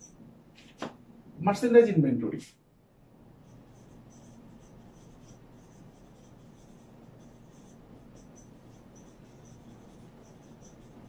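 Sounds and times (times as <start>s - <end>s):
marker squeaking on whiteboard: 3.3s - 11.0s.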